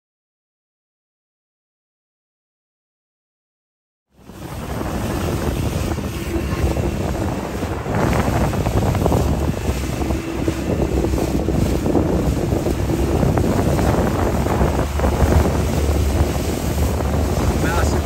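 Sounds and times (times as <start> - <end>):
boat motor running: 4.1 - 18.0
water washing past hull: 4.1 - 18.0
wind buffeting microphone: 4.1 - 18.0.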